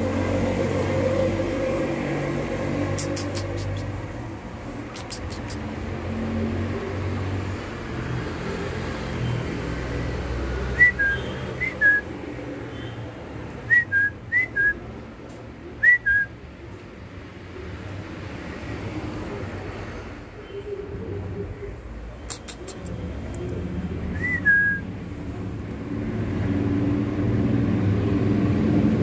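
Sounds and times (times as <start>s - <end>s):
person whistling two-note calls: 10.8s - 12.1s, 13.7s - 14.8s, 15.8s - 16.3s, 24.2s - 24.9s.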